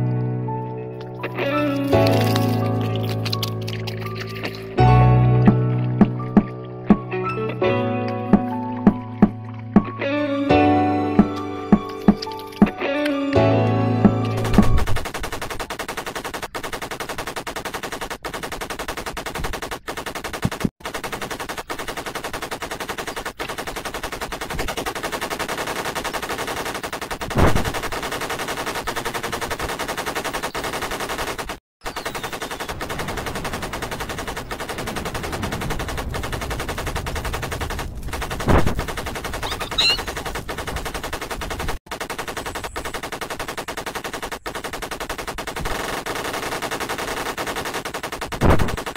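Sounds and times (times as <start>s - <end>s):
rapid machine-gun fire: 14.3s - 48.9s
loud bangs: 27.1s - 28.4s, 31.9s - 45.9s.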